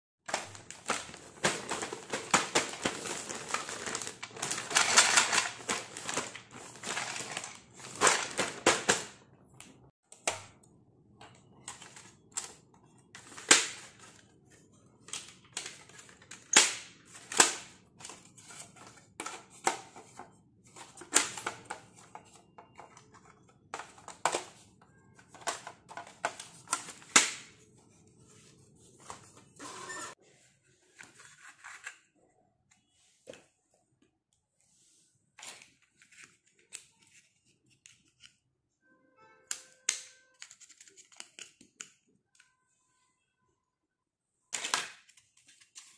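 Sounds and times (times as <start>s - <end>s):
plastic bag crinkling: 0.3s - 8.6s.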